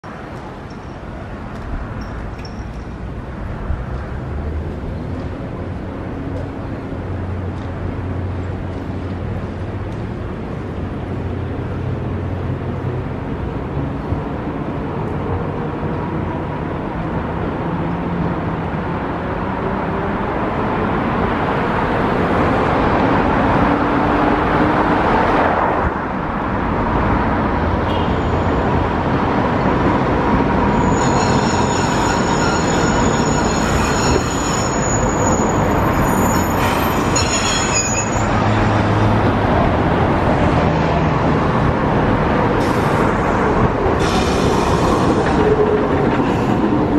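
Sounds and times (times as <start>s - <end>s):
tram motors and wheels rumbling: 0.0s - 46.9s
high-pitched tram squeal: 27.8s - 39.2s, 42.6s - 46.9s.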